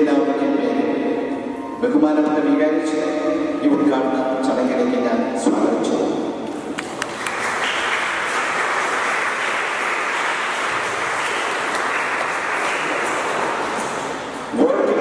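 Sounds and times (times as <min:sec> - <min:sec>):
audience applauding: 0:06.4 - 0:14.6.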